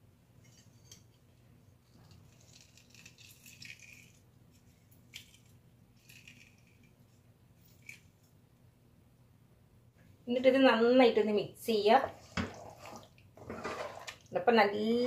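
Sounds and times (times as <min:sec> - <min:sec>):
juice trickling: 0:01.9 - 0:07.0.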